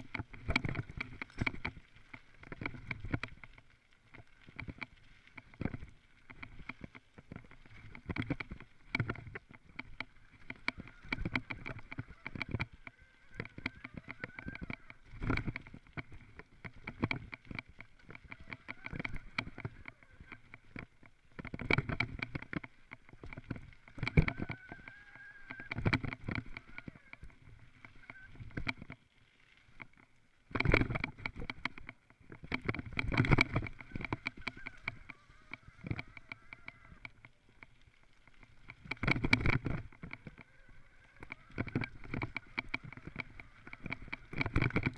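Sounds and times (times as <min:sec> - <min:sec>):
bike frame rattling and knocking: 0:00.0 - 0:29.0, 0:29.8 - 0:44.9
tyres rushing on dirt: 0:00.0 - 0:29.0, 0:40.0 - 0:44.9.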